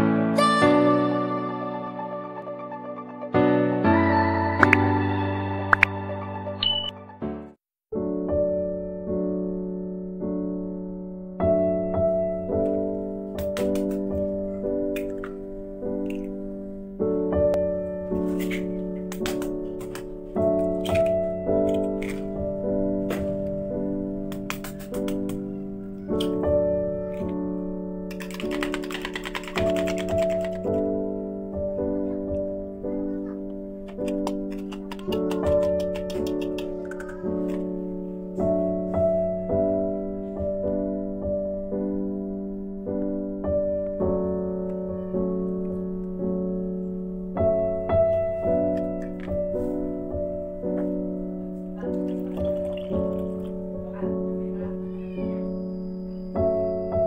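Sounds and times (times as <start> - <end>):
piano music: 0.0 - 57.0
egg cracking taps: 33.9 - 37.6, 52.0 - 53.6.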